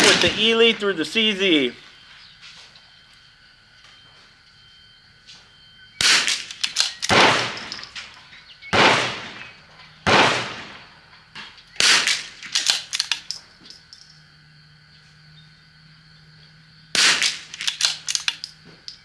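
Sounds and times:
rifle shots: 0.0s - 0.8s, 6.0s - 7.9s, 8.7s - 11.0s, 11.8s - 13.2s, 17.0s - 18.3s
faint rifle bolt clicks: 17.3s - 18.6s.

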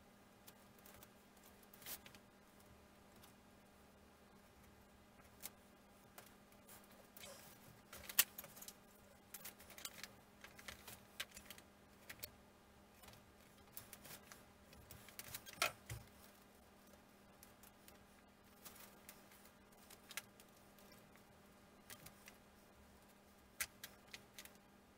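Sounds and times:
faint steady hum: 0.0s - 24.9s
small wooden parts clicking and tapping: 7.9s - 12.3s.

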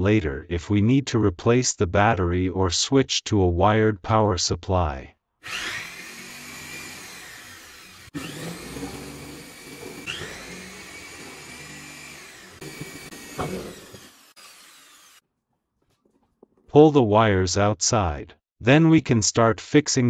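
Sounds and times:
electric drill boring through wood: 5.4s - 15.2s.

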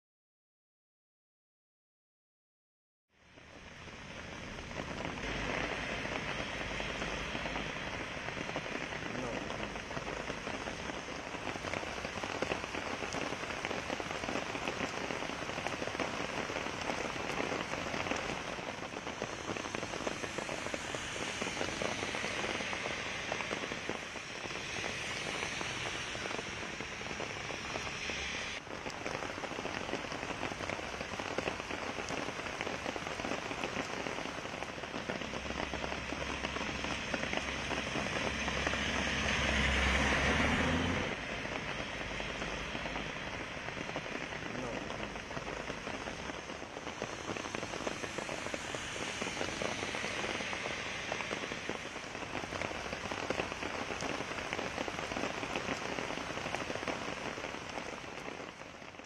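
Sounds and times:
heavy rain on wet road: 3.2s - 59.0s
vehicle engine rumble: 35.0s - 46.4s.

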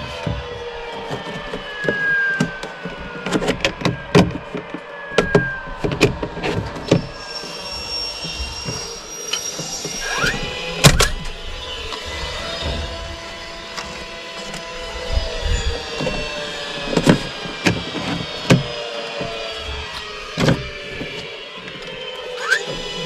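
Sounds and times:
plastic panels clacking: 0.0s - 7.1s, 16.0s - 23.0s
panel squeaking in channel: 6.4s - 13.6s, 15.6s - 23.0s.

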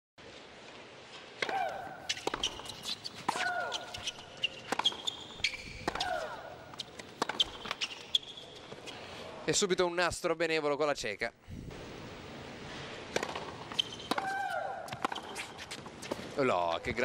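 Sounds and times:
racket striking tennis ball: 1.4s - 8.1s, 13.1s - 16.3s
woman shrieking: 14.2s - 14.9s.

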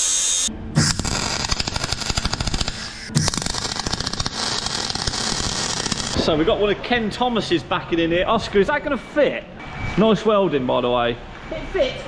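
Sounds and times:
welding arc crackling: 0.0s - 6.2s.

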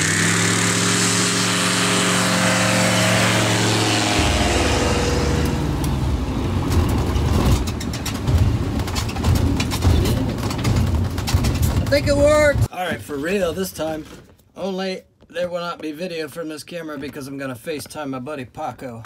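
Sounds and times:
wind buffeting: 3.5s - 12.7s.

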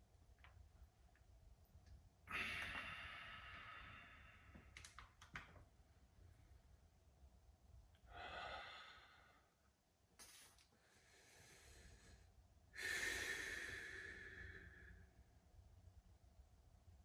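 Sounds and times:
man breathing deeply: 2.3s - 4.7s, 8.1s - 9.6s, 10.8s - 15.2s.

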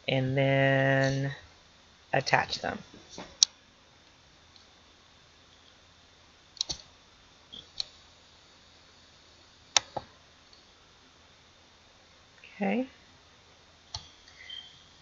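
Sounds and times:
computer mouse clicking: 6.6s - 6.9s.

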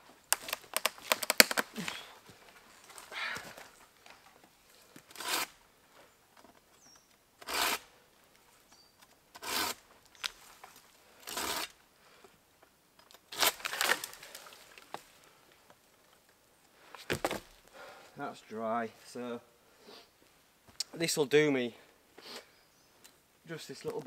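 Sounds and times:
hand saw cutting dry branch: 5.1s - 5.5s, 7.4s - 7.9s, 9.4s - 9.8s, 11.2s - 11.8s.

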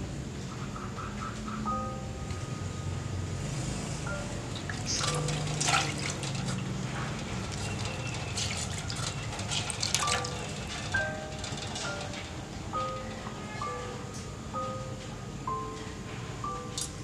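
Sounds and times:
water splashing into a metal pot: 4.6s - 6.8s, 7.4s - 10.9s
wet cloth wrung out: 4.6s - 6.8s, 7.5s - 10.9s.

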